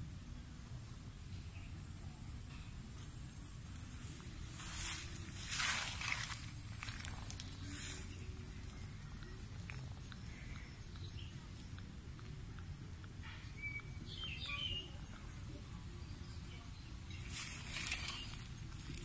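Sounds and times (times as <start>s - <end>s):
high chirping calls: 13.2s - 19.0s.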